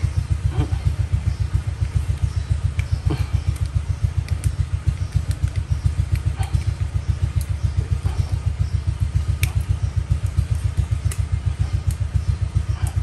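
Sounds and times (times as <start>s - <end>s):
small engine running: 0.0s - 13.0s
light metallic clicks of pliers: 1.8s - 7.6s, 9.3s - 12.1s.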